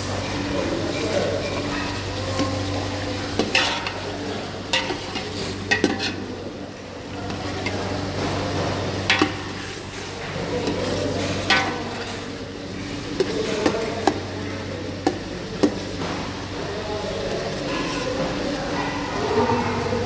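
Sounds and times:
chicken sizzling in hot oil: 0.0 - 18.5.

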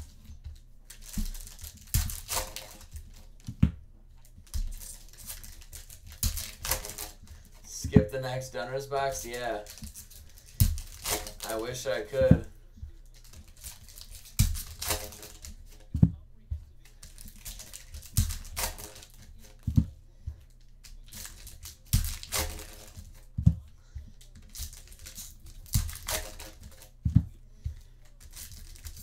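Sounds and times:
foil wrappers crinkling and tearing: 0.9 - 3.4, 4.2 - 7.7, 8.4 - 12.2, 13.0 - 15.8, 16.8 - 19.7, 20.6 - 23.3, 24.2 - 27.0, 28.0 - 29.0.

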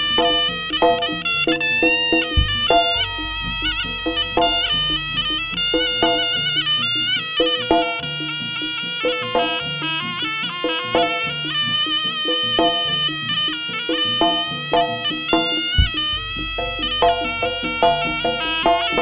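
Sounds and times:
shawm playing nasal melody: 0.0 - 19.0
deep gong stroke: 2.1 - 7.6, 15.8 - 19.0
gong-chime strokes: 2.1 - 7.6.

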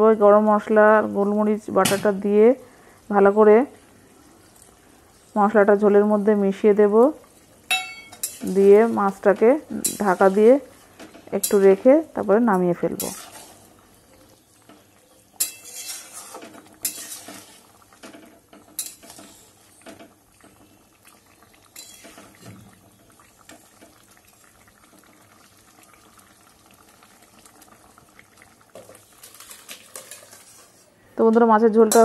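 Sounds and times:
spoon scraping and curry sloshing: 7.2 - 11.7, 13.0 - 20.7, 21.7 - 24.6, 28.7 - 31.0
metal spoon clinking against pan: 7.7 - 8.7, 15.4 - 16.2, 18.7 - 19.2, 21.8 - 22.2.

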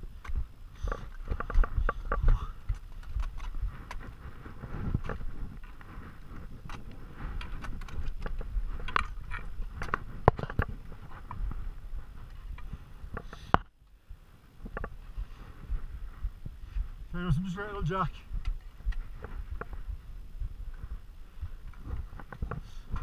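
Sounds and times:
ice axe on rock and snow: 0.0 - 13.7.

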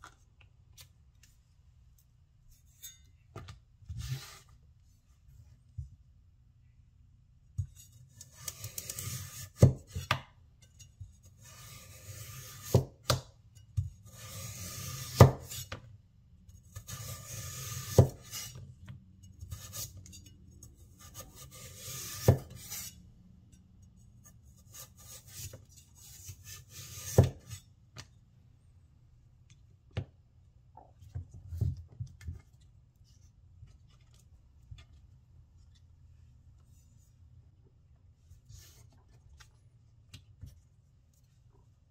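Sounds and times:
knife slicing through carrot: 11.4 - 13.2, 14.0 - 15.8, 16.7 - 18.6, 20.9 - 23.0, 24.2 - 27.6.

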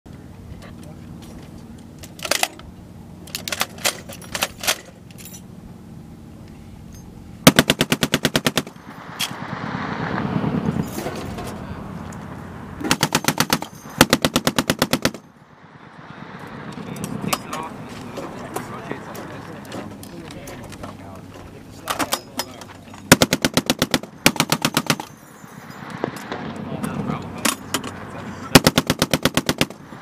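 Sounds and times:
heavy machine gun firing bursts: 7.4 - 8.8, 12.9 - 15.3, 23.1 - 25.1, 28.6 - 29.8.

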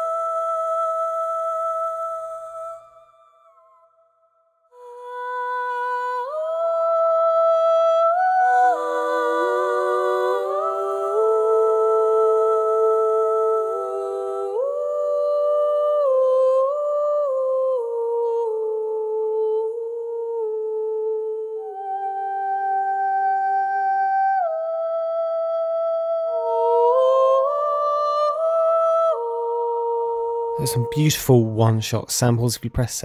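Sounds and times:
layered wordless vocals with reverb: 0.0 - 4.0, 4.7 - 33.0.

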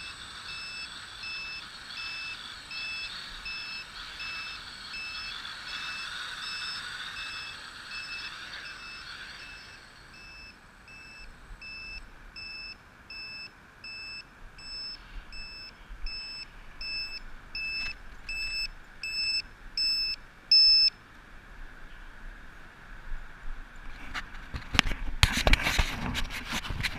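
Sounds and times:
drone propellers whirring: 0.0 - 12.6
drone beeper high beeps: 0.0 - 20.9.

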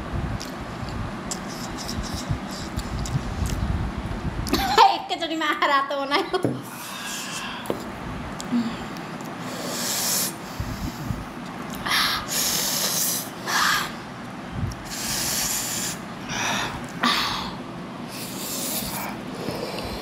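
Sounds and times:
sharp hissing breaths: 9.4 - 11.2, 11.9 - 14.0, 14.9 - 20.0.

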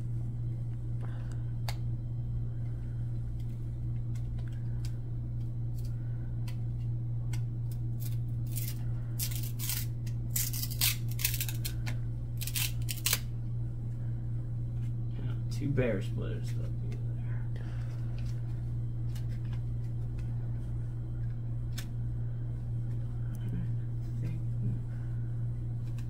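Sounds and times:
steady low hum: 0.0 - 26.0
cardboard cards scraping apart: 7.6 - 13.3.

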